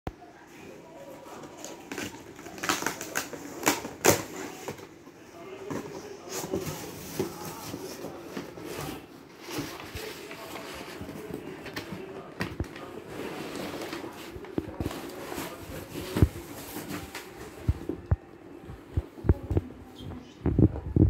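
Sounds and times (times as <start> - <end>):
packing paper rustling: 1.3 - 4.8, 6.2 - 18.0.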